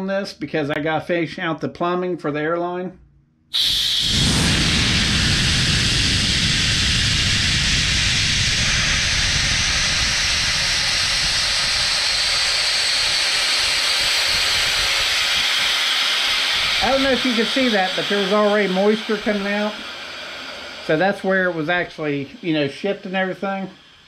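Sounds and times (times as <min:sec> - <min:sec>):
low rumble: 0:03.6 - 0:22.7
compressed air hissing: 0:03.6 - 0:24.0.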